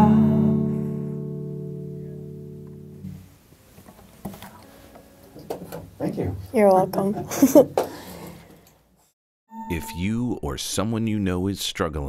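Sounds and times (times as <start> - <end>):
acoustic guitar chord ringing: 0.0 - 3.4.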